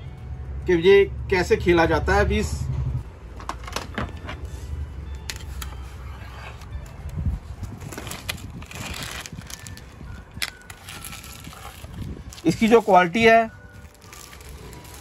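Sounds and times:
plastic wrap crinkling: 0:07.5 - 0:15.0.

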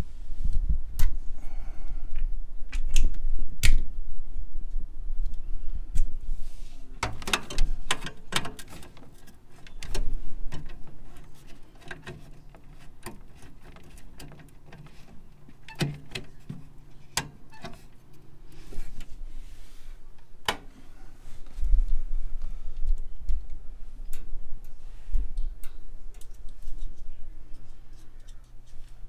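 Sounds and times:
screwdriver clicks and metal taps: 0:07.0 - 0:17.9.

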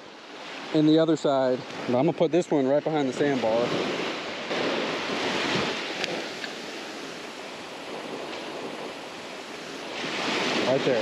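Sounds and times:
small waves breaking on sand: 0:00.0 - 0:11.0
wind on microphone: 0:01.6 - 0:11.0.

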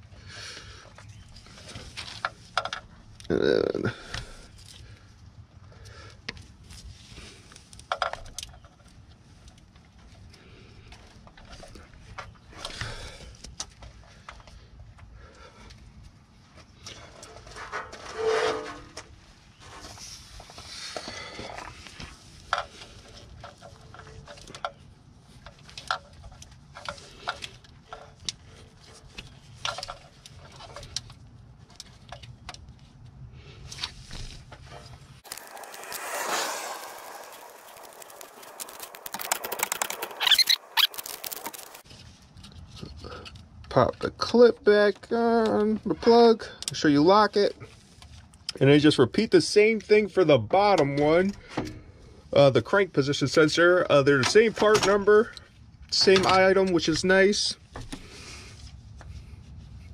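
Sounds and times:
glove rustling: 0:35.2 - 0:41.8.

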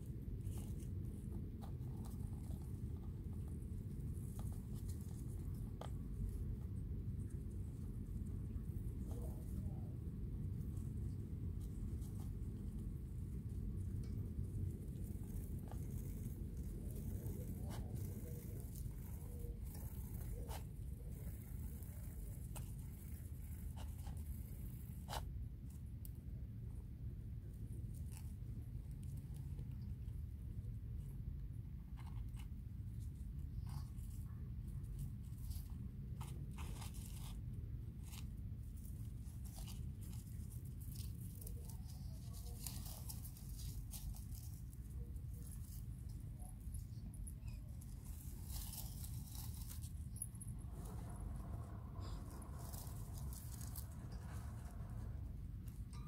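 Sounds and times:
steady low hum: 0:00.0 - 0:56.0
hamsters rustling in bedding: 0:10.6 - 0:25.3, 0:32.0 - 0:56.0.

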